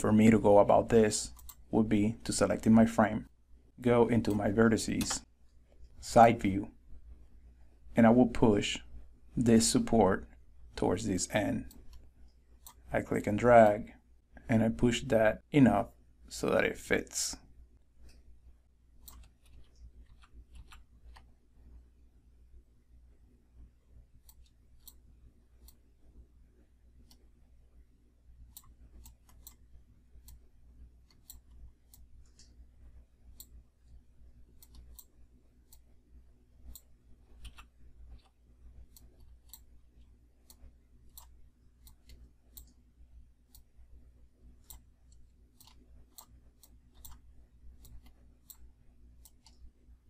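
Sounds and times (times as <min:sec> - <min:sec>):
low steady hum: 0:00.0 - 0:50.0
computer mouse clicks: 0:01.3 - 0:01.6, 0:19.0 - 0:21.3, 0:24.2 - 0:25.0, 0:28.5 - 0:29.6, 0:31.0 - 0:32.6, 0:33.3 - 0:33.6, 0:34.6 - 0:35.9, 0:36.7 - 0:42.8, 0:44.6 - 0:49.7.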